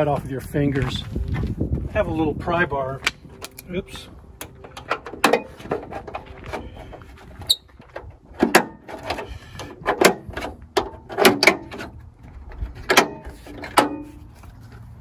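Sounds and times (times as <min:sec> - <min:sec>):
short high squeak: 0:07.4 - 0:07.7.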